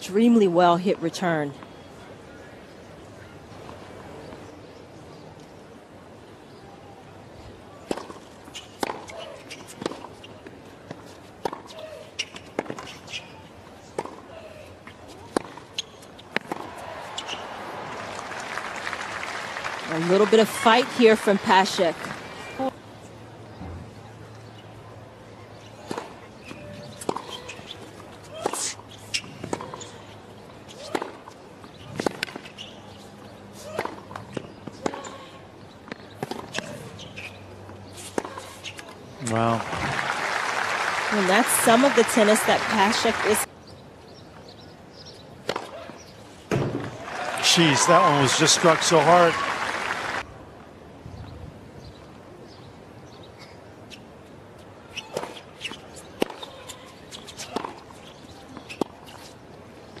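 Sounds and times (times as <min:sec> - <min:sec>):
tennis balls struck by rackets: 0:07.8 - 0:13.3, 0:13.9 - 0:17.6, 0:25.7 - 0:30.0, 0:30.7 - 0:32.7, 0:33.6 - 0:35.2, 0:35.8 - 0:37.3, 0:45.4 - 0:49.3, 0:55.0 - 0:59.1
players' footsteps: 0:14.8 - 0:22.8, 0:37.7 - 0:43.5, 0:45.4 - 0:50.2.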